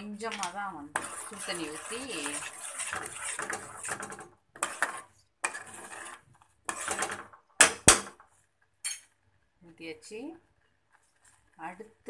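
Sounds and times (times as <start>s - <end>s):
metal spoon scraping pot: 0.0s - 8.2s.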